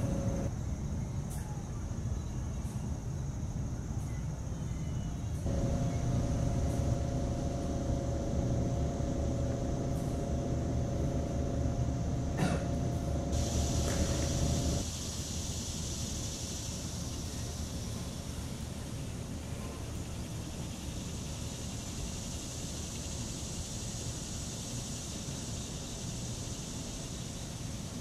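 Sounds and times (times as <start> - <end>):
low outdoor rumble: 0.0 - 0.5, 5.4 - 14.9
mid-pitched hum: 0.0 - 0.5, 5.4 - 14.9.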